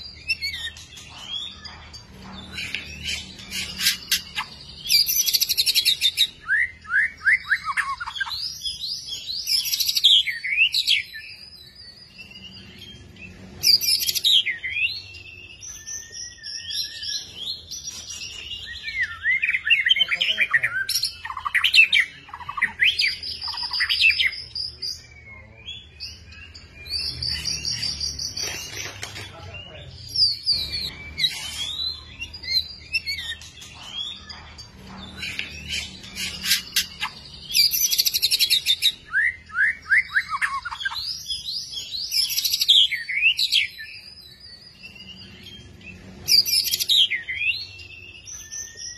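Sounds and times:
bird singing whistles and trills: 0:02.4 - 0:28.9, 0:29.7 - 0:34.4, 0:35.0 - 0:48.9.

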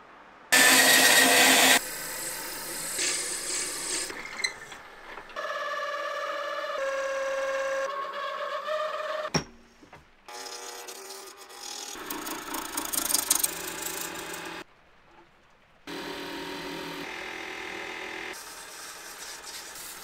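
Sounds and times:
lathe drill bit whining: 0:00.6 - 0:04.7.

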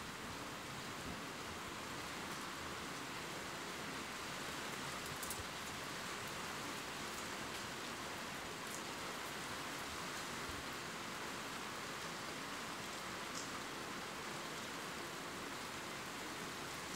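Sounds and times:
steady rain falling: 0:00.0 - 0:16.9.

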